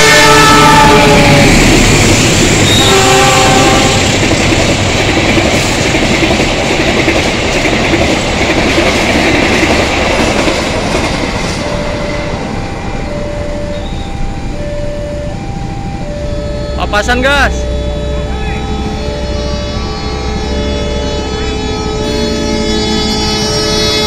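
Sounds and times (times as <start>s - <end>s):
train horn blast: 0.0s - 1.7s, 2.6s - 4.2s, 17.5s - 24.0s
train wheels clattering over rails: 1.2s - 12.6s
two-note tones: 11.6s - 24.0s.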